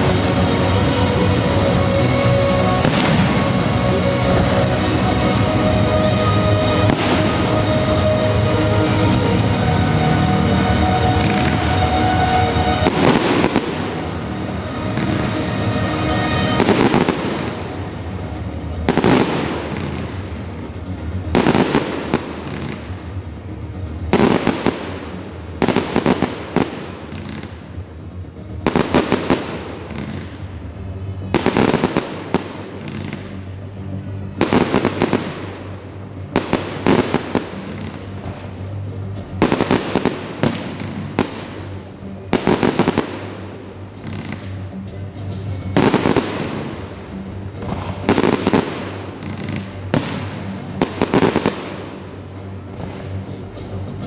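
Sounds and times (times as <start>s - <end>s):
firework crackling: 0.0s - 23.2s, 24.1s - 27.8s, 28.7s - 30.5s, 31.2s - 33.6s, 34.4s - 35.8s, 36.4s - 38.4s, 39.2s - 44.6s, 45.8s - 52.2s
music: 0.0s - 54.0s
firework bangs: 2.7s - 5.0s, 6.7s - 7.8s, 11.0s - 17.9s, 18.8s - 20.2s, 31.3s - 33.4s, 34.4s - 35.7s, 39.4s - 43.5s, 47.6s - 52.0s.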